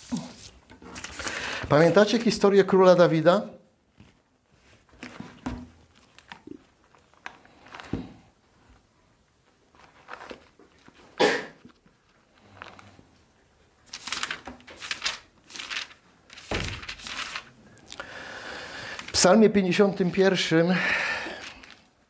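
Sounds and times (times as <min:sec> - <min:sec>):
pages rustling: 0:00.0 - 0:02.3, 0:03.9 - 0:13.1, 0:13.8 - 0:18.0, 0:18.8 - 0:19.3, 0:21.3 - 0:22.0.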